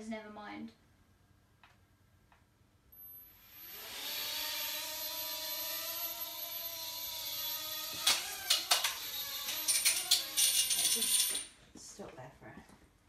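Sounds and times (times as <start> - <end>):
toy drone motors whining: 3.2 - 11.5.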